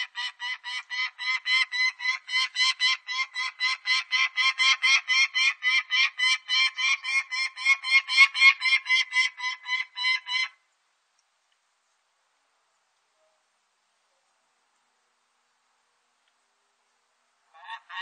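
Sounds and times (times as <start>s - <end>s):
falcon harsh kak calls: 0.0s - 10.6s, 17.6s - 18.0s.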